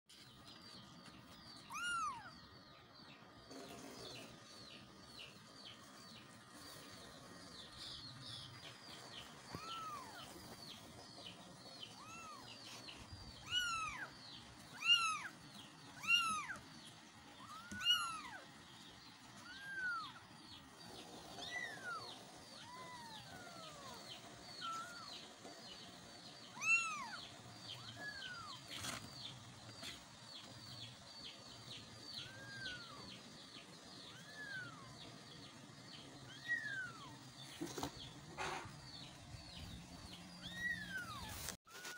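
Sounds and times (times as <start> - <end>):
kittens meowing: 1.6 - 2.4, 9.5 - 10.4, 11.9 - 12.6, 13.4 - 14.1, 14.7 - 16.6, 17.4 - 18.4, 19.4 - 20.2, 21.4 - 25.2, 26.5 - 28.7, 32.2 - 33.1, 34.0 - 35.0, 36.2 - 37.2, 40.4 - 41.5
faint high chirps: 1.6 - 2.6.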